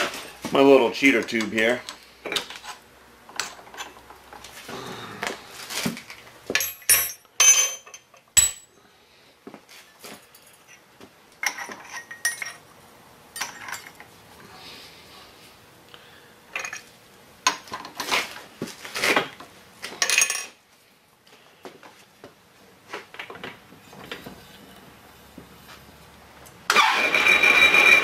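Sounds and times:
metal tools clinking: 6.6s - 8.7s, 11.4s - 12.6s, 13.4s - 14.1s, 16.6s - 16.9s, 20.0s - 20.5s.

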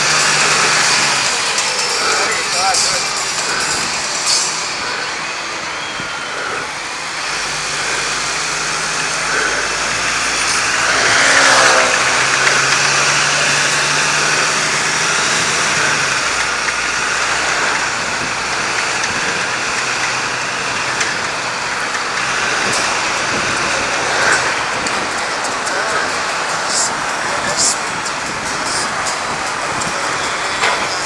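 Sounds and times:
road noise: 0.0s - 31.0s
vehicle engine running: 0.0s - 31.0s
vehicle passing: 0.0s - 31.0s.

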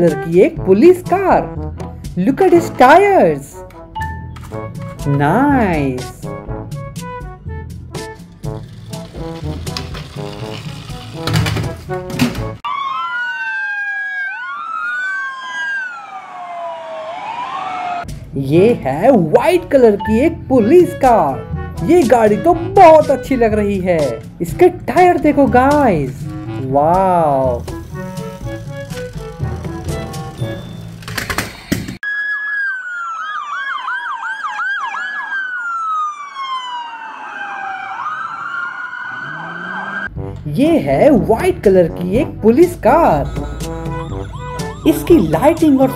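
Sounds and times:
toy siren wailing: 12.6s - 18.1s, 32.0s - 40.1s, 42.9s - 45.9s.

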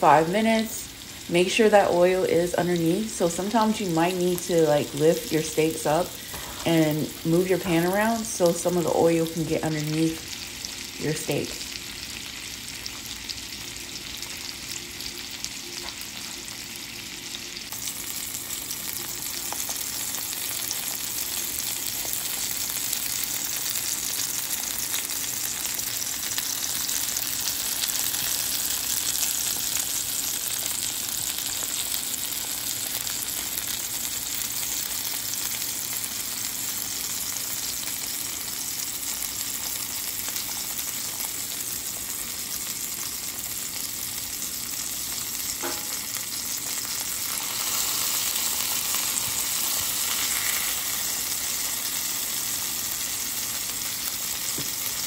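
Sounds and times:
meat sizzling in oil: 0.0s - 55.0s.

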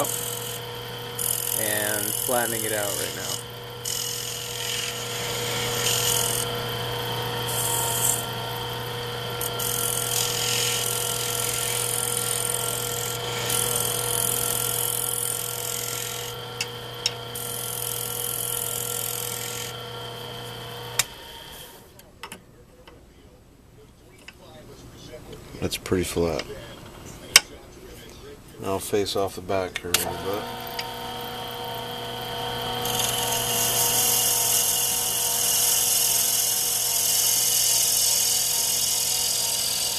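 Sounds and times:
turning tool scraping hiss: 0.0s - 6.6s, 7.2s - 8.3s
wood lathe motor hum: 0.0s - 21.8s, 29.9s - 39.9s.

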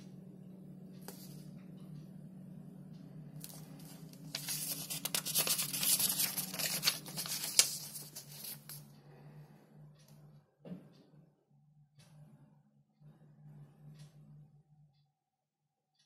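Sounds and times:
low steady hum: 0.0s - 16.0s
paper pages rustling: 3.4s - 8.8s
sharp paper crackle: 3.8s - 8.8s.

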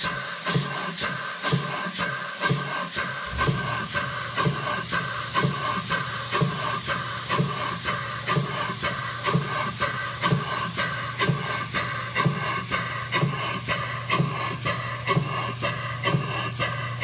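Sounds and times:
steam engine exhaust hissing: 0.0s - 17.0s
low hum: 3.2s - 4.7s.

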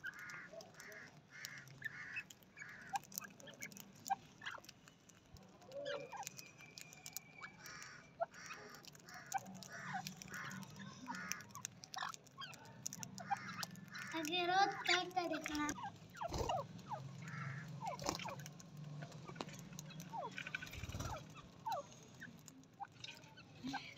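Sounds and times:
birds repeated calls: 0.0s - 23.9s.

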